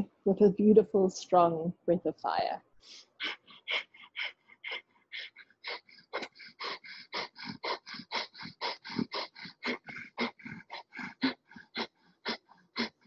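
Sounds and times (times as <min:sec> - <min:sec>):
rapid forceful nasal breaths: 0:02.8 - 0:13.0.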